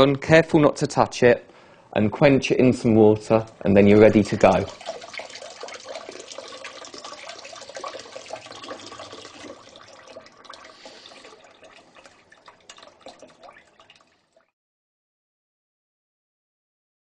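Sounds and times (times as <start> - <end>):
tap water splashing into sink: 4.2 - 14.2.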